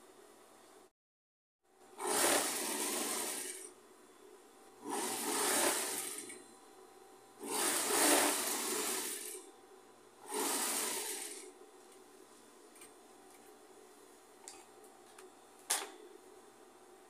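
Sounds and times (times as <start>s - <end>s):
faint steady hum: 0.0s - 0.9s, 1.7s - 17.0s
sewing machine stitching: 2.0s - 3.7s, 4.8s - 6.4s, 7.4s - 9.4s, 10.2s - 11.5s.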